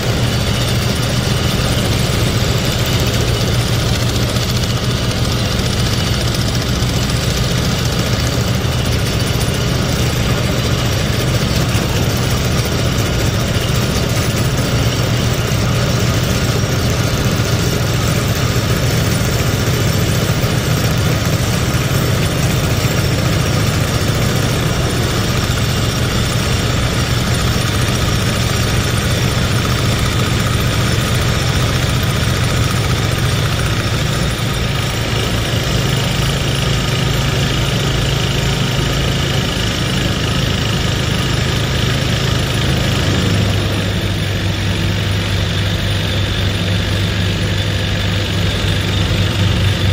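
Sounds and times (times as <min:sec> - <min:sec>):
engine noise: 0:00.0 - 0:49.9
vibratory pile driver humming: 0:00.0 - 0:49.9.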